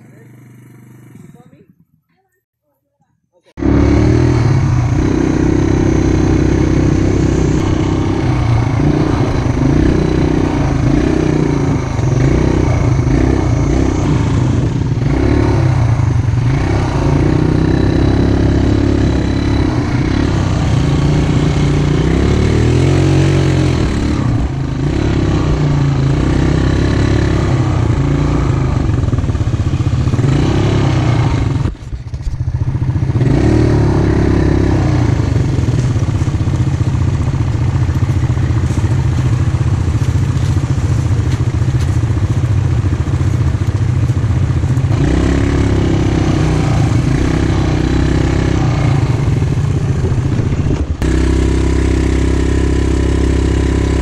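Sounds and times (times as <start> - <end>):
quad bike engine running: 0.0 - 1.9, 3.6 - 54.0.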